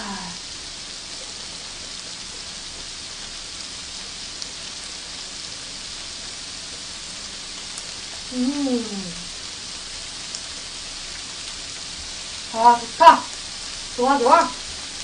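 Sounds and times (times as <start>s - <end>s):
person humming: 0.0s - 0.4s, 8.3s - 9.3s
meat sizzling on grill plate: 0.0s - 15.0s.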